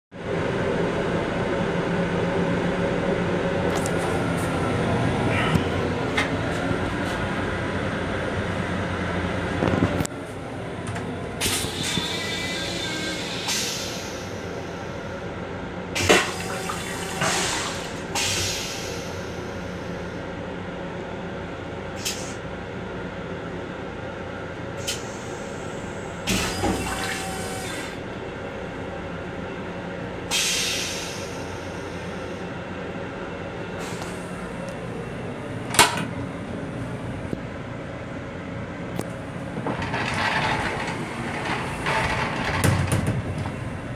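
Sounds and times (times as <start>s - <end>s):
train running noise: 0.2s - 43.9s
toilet flushing: 16.0s - 19.0s, 39.6s - 43.3s.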